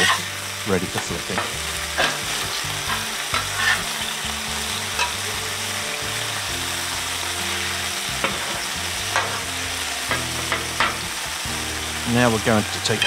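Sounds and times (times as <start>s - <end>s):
spatula scraping a griddle: 0.0s - 4.2s, 4.8s - 5.3s, 7.3s - 11.1s
patties sizzling on a griddle: 0.0s - 13.0s.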